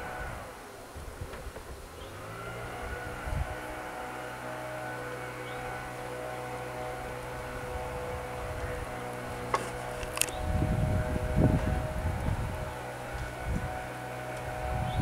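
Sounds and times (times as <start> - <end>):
wind rumbling on microphone: 0.0 - 4.0, 7.0 - 15.0
steady low hum: 0.0 - 15.0.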